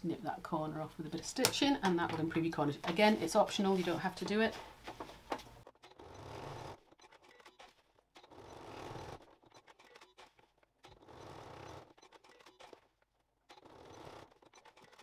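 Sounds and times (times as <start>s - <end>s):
sewing machine running: 5.9s - 7.6s, 8.2s - 12.8s, 13.5s - 15.0s.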